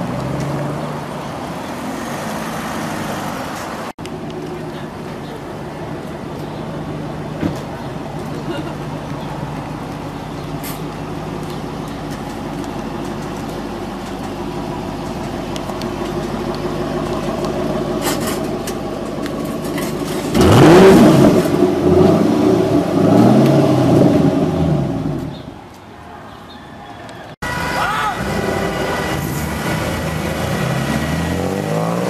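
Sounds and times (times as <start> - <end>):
car engine idling: 4.0 - 20.8
car engine revving: 15.6 - 25.3, 27.4 - 32.0.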